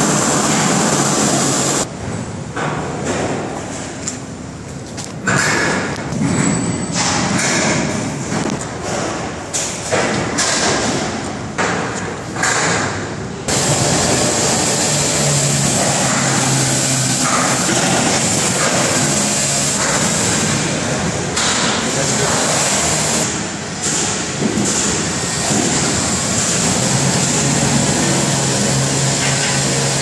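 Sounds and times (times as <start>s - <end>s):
loud steady machine noise: 0.0s - 2.0s, 12.3s - 30.0s
knocks and clatter: 4.9s - 28.3s.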